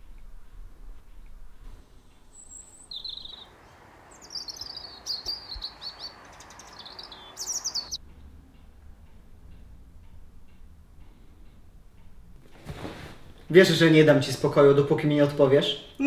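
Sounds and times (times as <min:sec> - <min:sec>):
steady outdoor hiss: 0:00.0 - 0:16.0
small birds chirping: 0:01.0 - 0:09.2.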